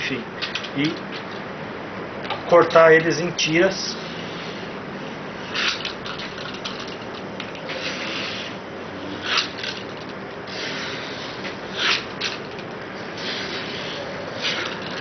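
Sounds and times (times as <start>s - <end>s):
steady hiss: 10.4s - 15.0s.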